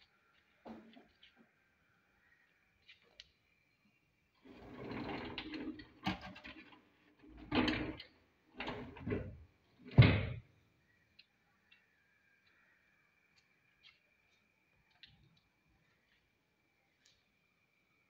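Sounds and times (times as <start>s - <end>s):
wooden drawer scraping: 4.4s - 10.3s.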